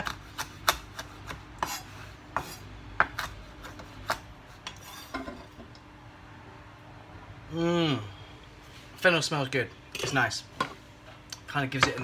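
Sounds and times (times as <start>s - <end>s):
knife chopping on wooden board: 0.0s - 4.3s.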